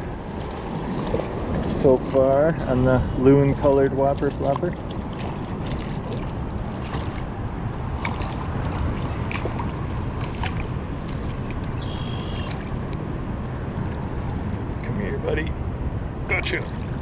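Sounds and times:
river water rushing: 4.3 - 14.8
fish splashing at surface: 4.5 - 13.0.

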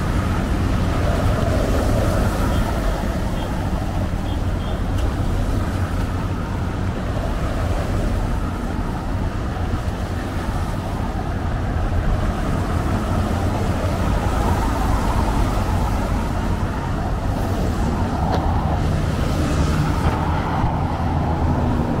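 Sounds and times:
low traffic rumble: 0.0 - 22.0.

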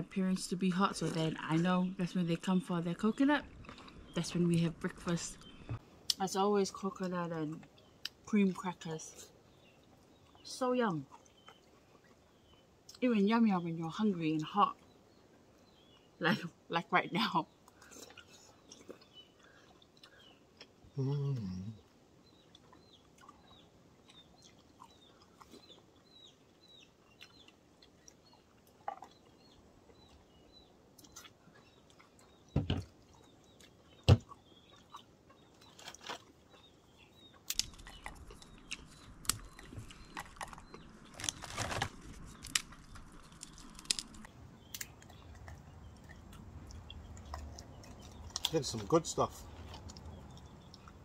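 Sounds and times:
small bird chirping: 0.8 - 51.0
rustling: 37.5 - 44.3.

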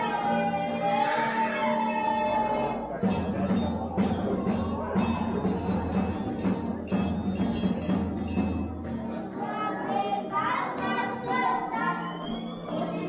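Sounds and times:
steady beat of strokes: 3.0 - 9.0
high ringing tones: 3.1 - 9.0.

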